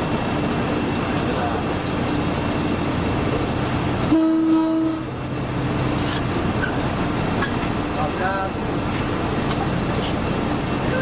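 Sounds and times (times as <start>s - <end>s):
train running noise: 0.0s - 11.0s
train horn blast: 4.0s - 5.1s.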